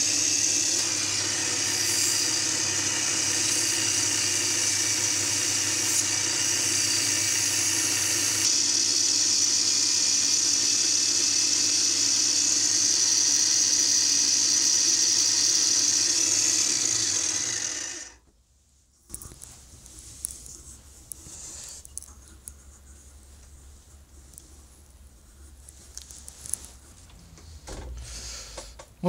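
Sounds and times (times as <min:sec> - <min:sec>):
sandpaper hissing on spinning wood: 0:00.0 - 0:18.2
wood lathe motor running: 0:00.0 - 0:18.2.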